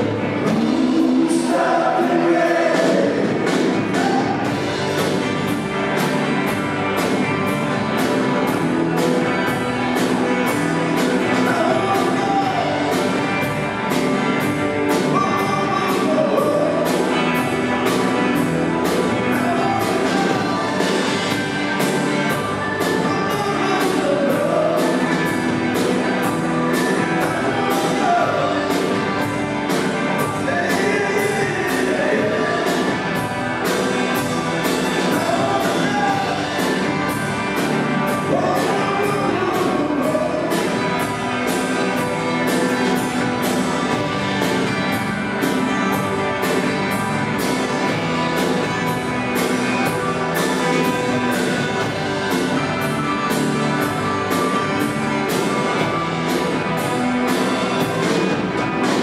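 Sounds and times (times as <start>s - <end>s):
acoustic-electric guitar: 0.0s - 59.0s
electric guitar: 0.0s - 59.0s
man singing: 0.3s - 4.5s, 11.2s - 13.0s, 15.0s - 17.2s, 19.3s - 20.9s, 22.8s - 25.2s, 27.2s - 28.9s, 30.2s - 33.0s, 34.9s - 36.8s, 38.1s - 40.8s.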